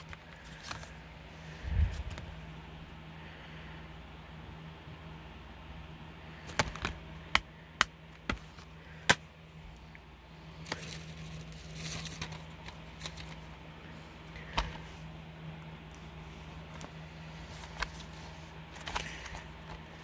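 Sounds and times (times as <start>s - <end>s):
cardboard rustling: 10.5s - 13.6s, 16.0s - 20.0s.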